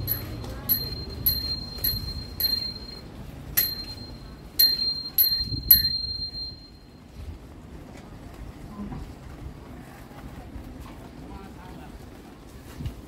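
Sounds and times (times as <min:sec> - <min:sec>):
small metallic dings ringing: 0:00.0 - 0:06.9.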